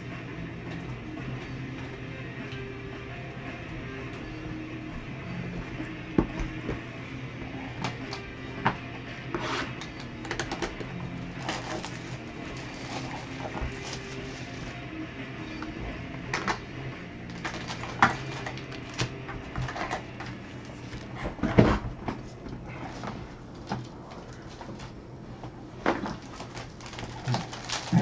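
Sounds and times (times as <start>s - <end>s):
steady low hum: 0.0s - 28.0s
cardboard box and packs rustling: 11.2s - 14.8s, 17.3s - 28.0s.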